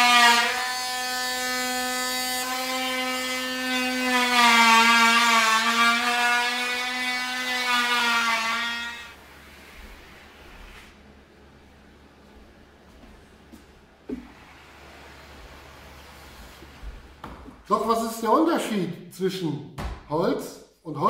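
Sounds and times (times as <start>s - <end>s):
trim router whining: 0.0s - 10.4s.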